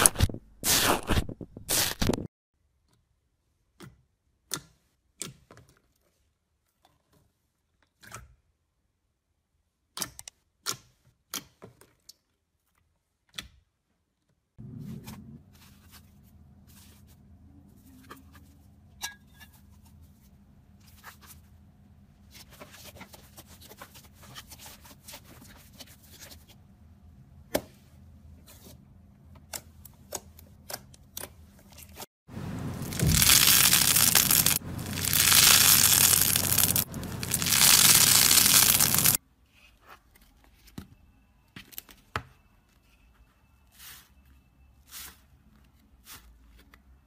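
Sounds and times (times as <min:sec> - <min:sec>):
faint steady hum: 0:32.3 - 0:39.2.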